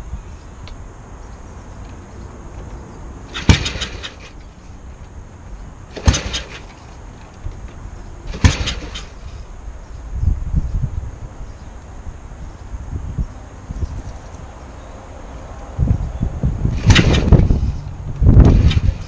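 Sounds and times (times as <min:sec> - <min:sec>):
engine turning over clatter: 0:03.3 - 0:05.2, 0:05.9 - 0:09.4, 0:16.7 - 0:19.0.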